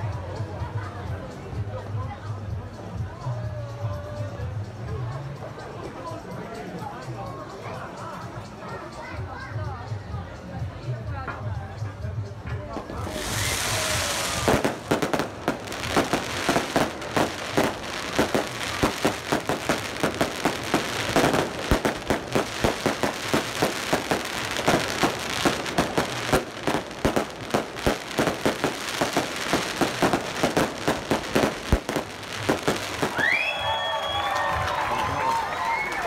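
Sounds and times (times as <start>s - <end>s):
fireworks bangs and crackles: 12.4s - 34.4s.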